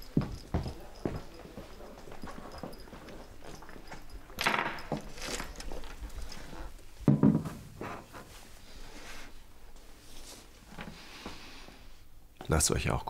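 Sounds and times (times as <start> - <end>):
footsteps: 0.0 - 11.4
knocks: 7.0 - 7.6.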